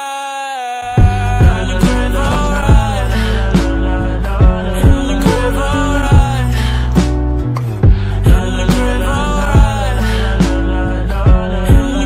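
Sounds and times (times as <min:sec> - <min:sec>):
background music: 0:00.0 - 0:12.0
heavy low drum hits: 0:01.0 - 0:01.9
held chords: 0:01.0 - 0:12.0.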